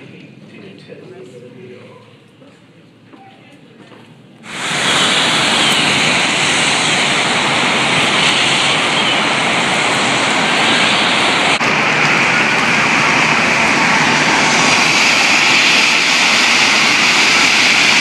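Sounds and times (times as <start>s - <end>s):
rain falling on wet streets: 4.5s - 18.0s.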